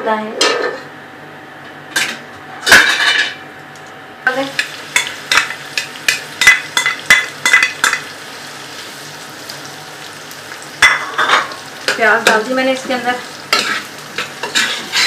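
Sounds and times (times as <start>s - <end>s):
onions sizzling in pan: 4.3s - 15.0s
metal spoon scraping pan: 13.6s - 15.0s.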